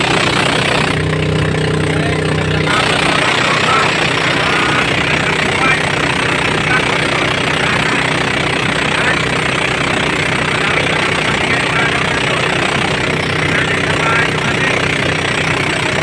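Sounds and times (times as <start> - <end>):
boat engine droning: 0.0 - 16.0.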